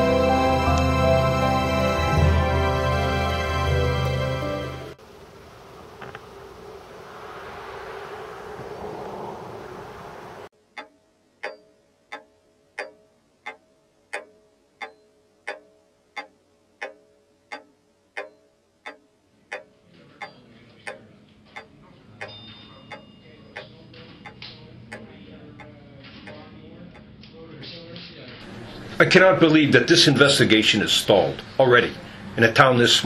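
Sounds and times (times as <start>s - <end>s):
low hum: 0.0s - 11.5s
faint higher tones: 5.0s - 11.9s
clock ticking: 10.7s - 27.1s.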